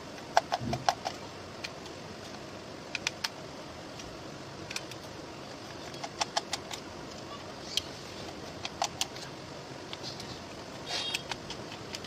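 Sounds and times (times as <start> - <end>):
steady low hiss: 0.0 - 12.0
screwdriver clicking on plastic: 7.8 - 9.2, 11.0 - 12.0.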